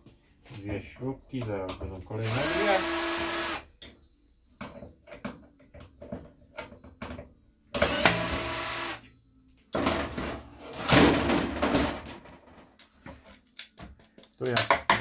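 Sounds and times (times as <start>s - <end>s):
power drill running: 2.2s - 3.6s, 7.8s - 9.0s.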